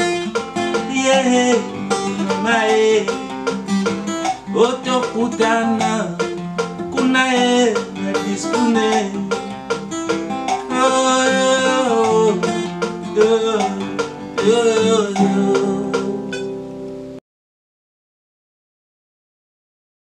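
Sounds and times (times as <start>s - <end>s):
plucked acoustic guitar: 0.0s - 17.2s
woman singing: 14.4s - 16.4s.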